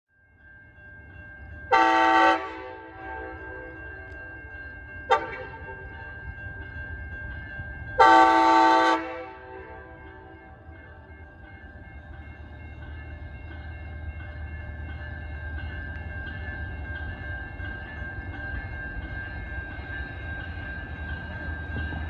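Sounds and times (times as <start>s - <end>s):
low train rumble: 0.2s - 22.0s
locomotive horn chords: 1.7s - 3.5s, 8.0s - 10.0s.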